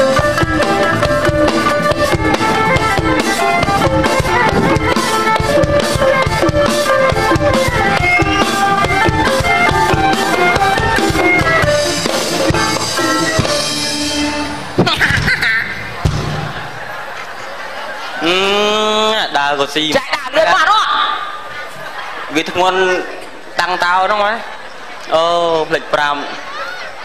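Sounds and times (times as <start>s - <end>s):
bowed fiddle: 0.0s - 14.8s
steady drum beat: 0.0s - 15.2s, 15.9s - 17.0s.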